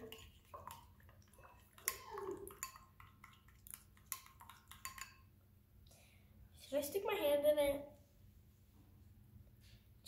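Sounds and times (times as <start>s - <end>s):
spoon stirring wet glue: 0.0s - 5.4s.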